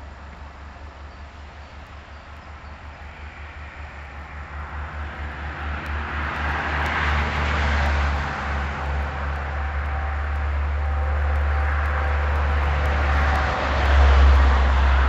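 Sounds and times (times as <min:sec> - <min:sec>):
vehicle passing: 0:03.6 - 0:15.0.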